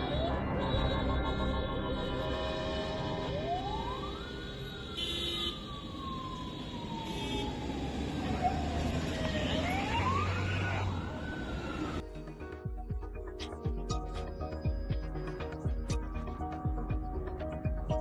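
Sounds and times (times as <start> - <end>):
fire engine siren wailing: 0.0 - 12.0.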